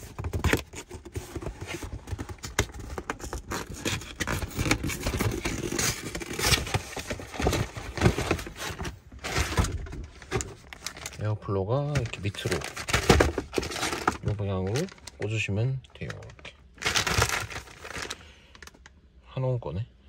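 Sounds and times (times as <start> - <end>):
paper bag rustling: 3.5 - 11.3, 11.9 - 18.4.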